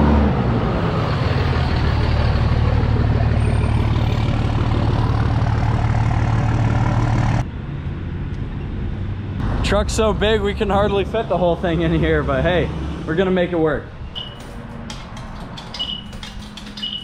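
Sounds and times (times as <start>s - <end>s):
diesel truck engine running: 0.0s - 7.4s.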